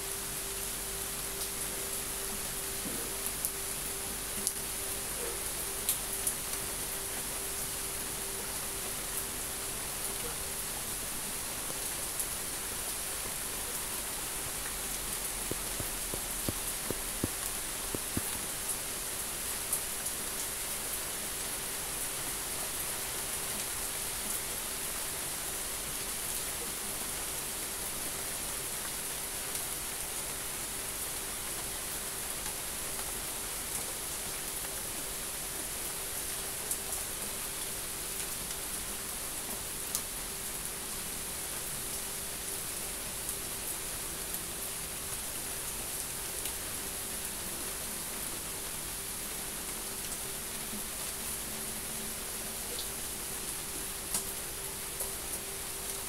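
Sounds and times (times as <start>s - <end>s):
steady rain falling: 0.0s - 56.0s
sharp raindrop ticks: 14.7s - 18.7s, 54.1s - 54.3s.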